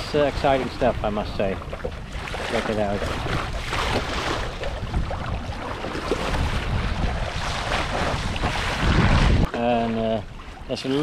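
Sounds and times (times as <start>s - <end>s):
wind buffeting microphone: 0.0s - 10.7s
water rushing along a hull: 0.0s - 11.0s.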